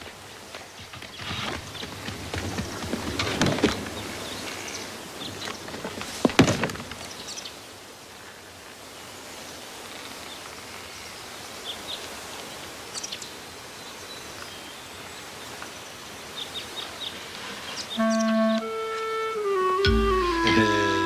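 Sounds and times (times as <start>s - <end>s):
outdoor background hiss: 0.0s - 21.0s
high bird chirps: 17.9s - 18.6s.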